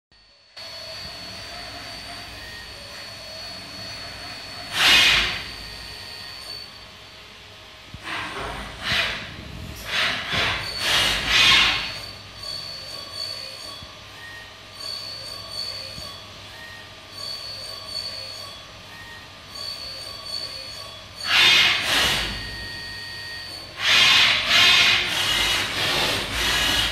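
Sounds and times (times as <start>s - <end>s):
machine high whine: 0.1s - 26.9s
loud noisy machine bursts: 0.5s - 6.8s, 8.0s - 13.4s, 21.2s - 22.8s, 23.7s - 26.9s.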